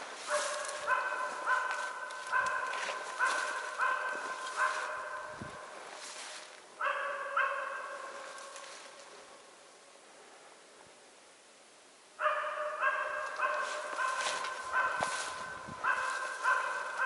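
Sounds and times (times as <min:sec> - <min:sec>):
dog barking: 0:00.2 - 0:05.4, 0:06.8 - 0:08.4, 0:12.2 - 0:17.0.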